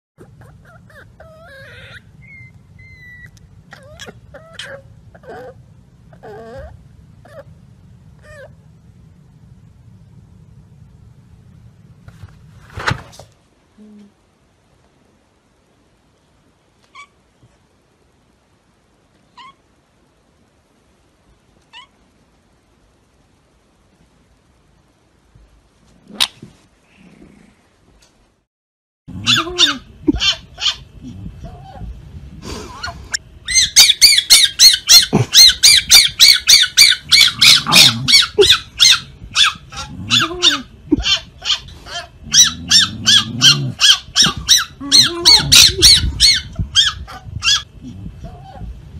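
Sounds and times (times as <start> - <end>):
fox chattering squeaky chirps: 33.5 - 47.7.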